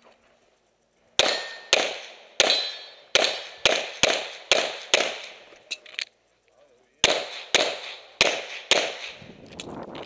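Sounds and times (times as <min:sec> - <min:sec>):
pistol shots with echo: 0:01.2 - 0:05.4, 0:07.0 - 0:09.2.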